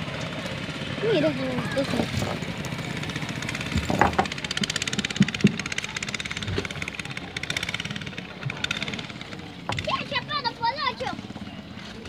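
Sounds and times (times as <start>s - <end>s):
small engine running: 0.0s - 12.0s
dull knocks: 3.7s - 5.7s.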